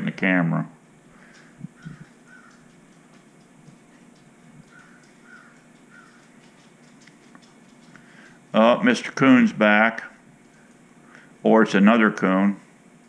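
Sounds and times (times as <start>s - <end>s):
room hum: 0.0s - 13.0s
short animal calls: 1.2s - 2.7s, 4.6s - 6.3s.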